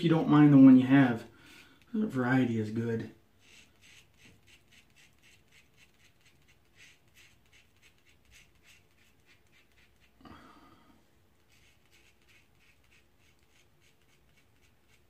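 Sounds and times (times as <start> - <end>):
razor scraping stubble: 3.4 - 10.2, 11.4 - 15.0.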